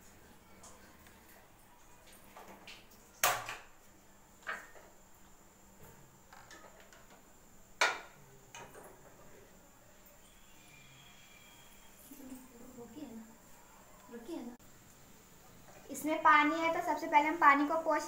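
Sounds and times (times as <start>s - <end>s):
utensils knocking on a pan: 7.8s - 8.9s.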